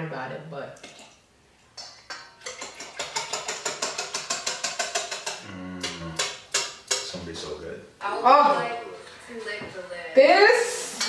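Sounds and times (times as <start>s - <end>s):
whisk clinking in metal bowl: 1.8s - 5.4s.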